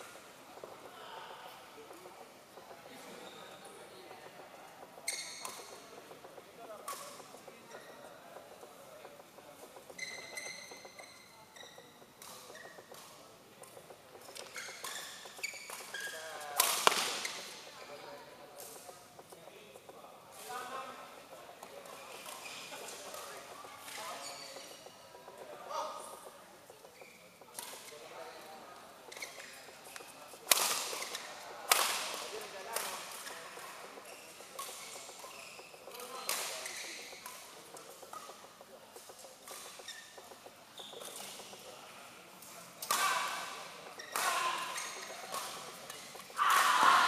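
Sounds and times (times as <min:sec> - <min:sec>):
faint footsteps: 0:00.0 - 0:46.4
shoes squeaking on court floor: 0:00.0 - 0:47.0
racket hitting shuttlecock: 0:16.6 - 0:17.6, 0:30.5 - 0:33.3.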